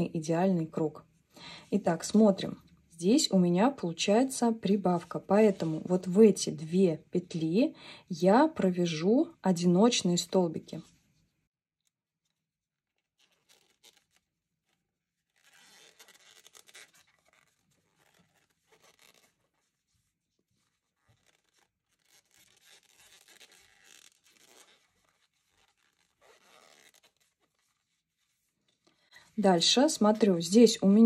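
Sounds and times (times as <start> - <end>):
yarn rustling through crochet hook: 4.2 - 7.5, 13.0 - 31.0.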